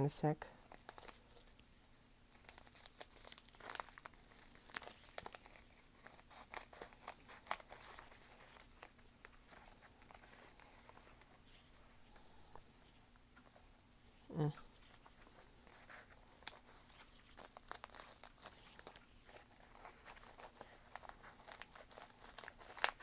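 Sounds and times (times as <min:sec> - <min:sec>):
package crinkling and tearing: 0:00.6 - 0:01.6, 0:02.3 - 0:11.3, 0:15.0 - 0:23.0.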